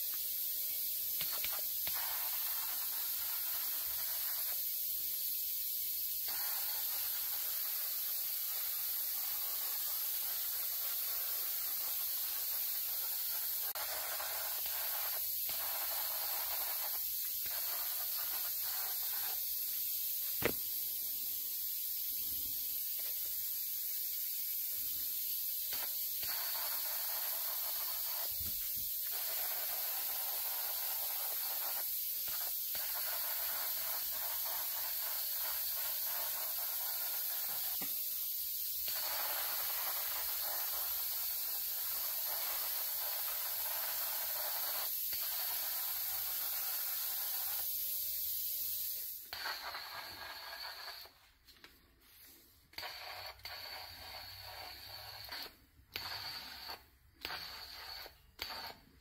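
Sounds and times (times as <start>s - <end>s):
powder coating gun air hiss: 0.0s - 59.0s
sharp click: 20.3s - 20.7s.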